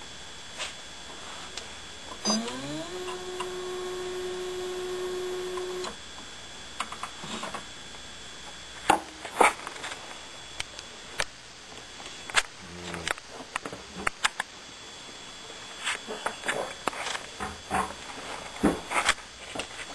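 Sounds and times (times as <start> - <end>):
espresso machine motor whirring: 1.6 - 7.6.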